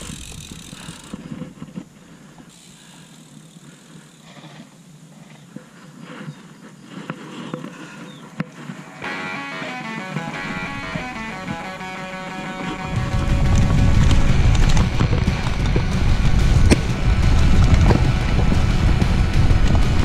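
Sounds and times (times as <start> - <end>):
sharp clicks from bike: 0.0 - 4.7
bike tyres crunching on dirt: 0.0 - 20.0.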